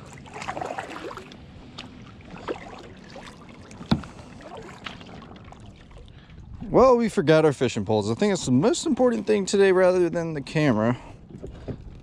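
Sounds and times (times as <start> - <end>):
paddle splashing in water: 0.0 - 6.3
paddle knocks: 3.8 - 4.2.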